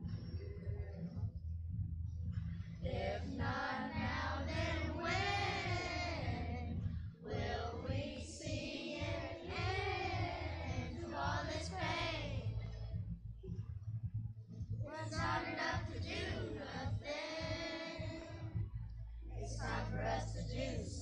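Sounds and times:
children's choir singing: 2.8 - 12.7, 14.9 - 18.5, 19.5 - 21.0.

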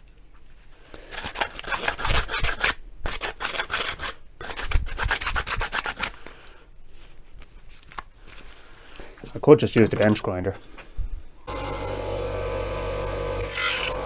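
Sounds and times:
hand file rasping on sheet metal: 1.2 - 6.1.

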